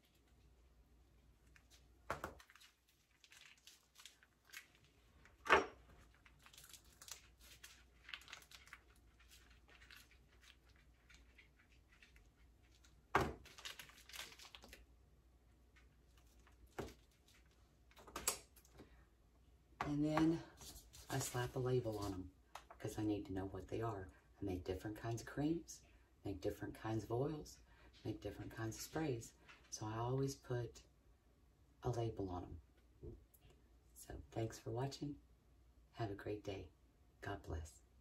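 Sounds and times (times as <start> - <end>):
plastic piping bag crinkling: 1.2 - 15.0, 15.6 - 18.8.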